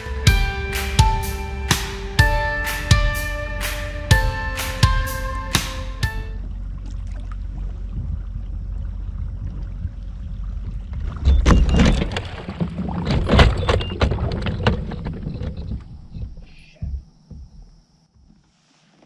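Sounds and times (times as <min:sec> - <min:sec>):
low rumble: 0:00.0 - 0:12.2
kayak hull scraping on rocks: 0:10.6 - 0:16.9.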